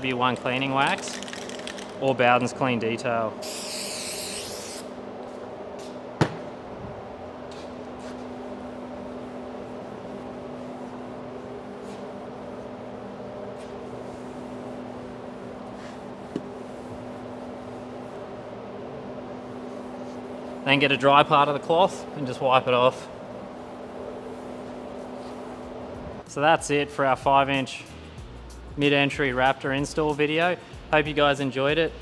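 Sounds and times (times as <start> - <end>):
spray bottle hissing: 3.4 - 4.9.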